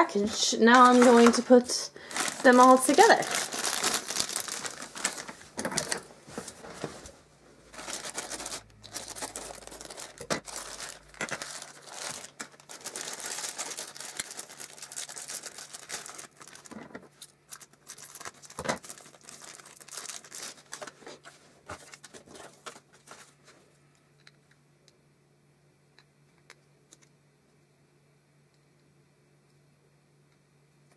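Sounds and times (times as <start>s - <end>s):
tissue paper crinkling: 0.2s - 7.1s, 7.7s - 23.5s.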